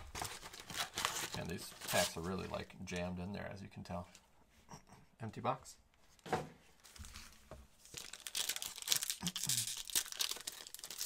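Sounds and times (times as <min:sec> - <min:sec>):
foil wrapper tearing and crinkling: 0:00.1 - 0:02.2, 0:07.8 - 0:11.0.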